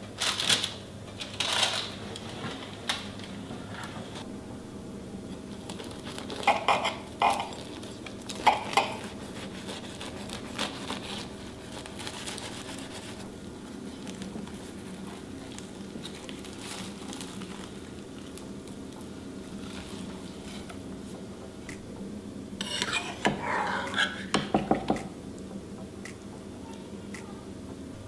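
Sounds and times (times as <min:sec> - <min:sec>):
knife cutting crunchy pastry crust: 0:08.4 - 0:12.9.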